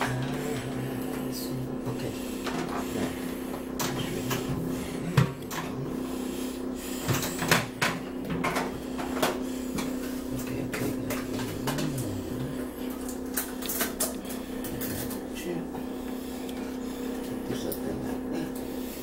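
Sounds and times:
microwave oven knocking and bumping: 0:00.0 - 0:06.1, 0:07.0 - 0:15.9
steady low hum: 0:00.0 - 0:19.0.

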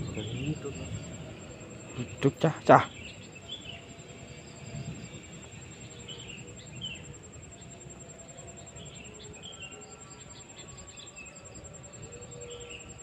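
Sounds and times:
bird chirps: 0:00.0 - 0:05.0.

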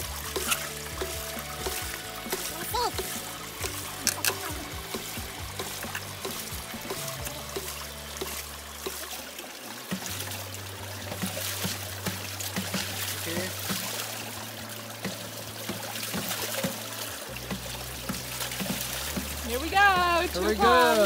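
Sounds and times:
pump valves clacking shut: 0:00.0 - 0:09.1
background music with bass notes: 0:00.0 - 0:21.0
water splashing and trickling: 0:00.0 - 0:21.0.

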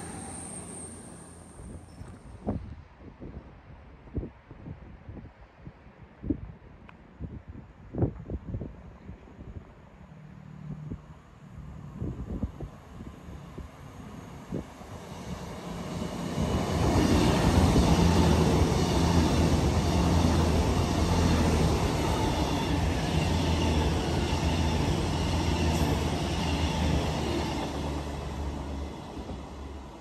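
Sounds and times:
diesel train engine hum: 0:00.0 - 0:02.0, 0:10.1 - 0:30.0
train wheels on rails: 0:13.7 - 0:30.0.

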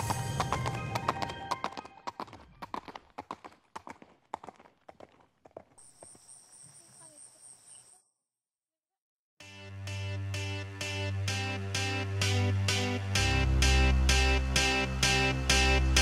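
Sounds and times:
horse hoof clops: 0:00.0 - 0:06.8.

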